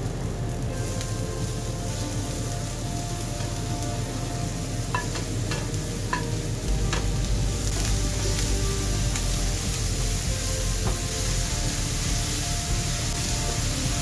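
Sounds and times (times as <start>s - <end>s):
beetroot sizzling in a frying pan: 0.0s - 14.0s
spatula tapping against pan: 4.9s - 6.3s.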